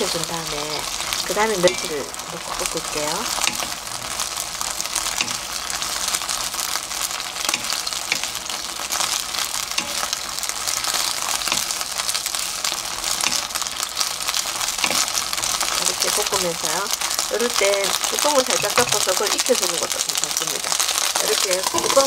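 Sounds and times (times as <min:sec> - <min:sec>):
peppers sizzling in a frying pan: 0:00.0 - 0:22.0
spatula ticking in pan: 0:00.8 - 0:17.2.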